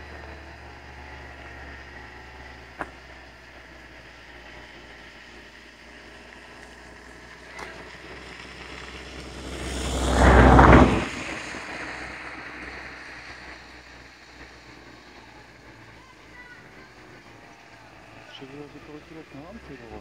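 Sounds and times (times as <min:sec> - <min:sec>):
drone propellers rushing: 0:06.6 - 0:20.0.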